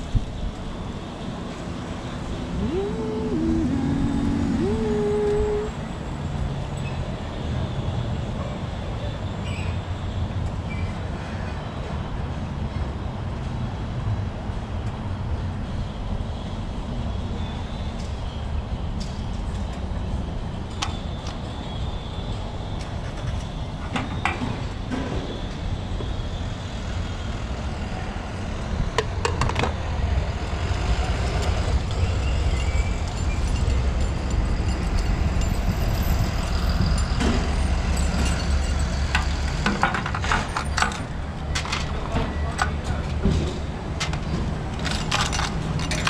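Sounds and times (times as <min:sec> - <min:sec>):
low vehicle rumble: 0:02.2 - 0:06.2.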